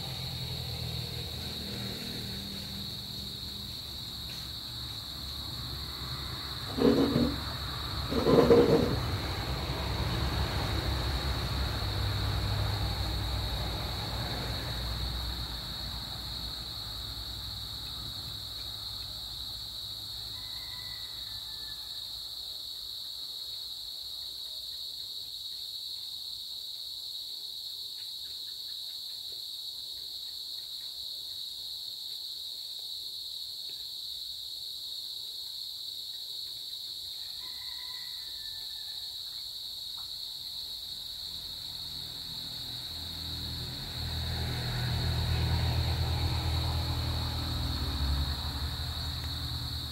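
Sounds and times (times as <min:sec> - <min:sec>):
vehicle passing: 0:00.0 - 0:18.9, 0:41.1 - 0:49.9
crickets chirring: 0:00.0 - 0:49.9.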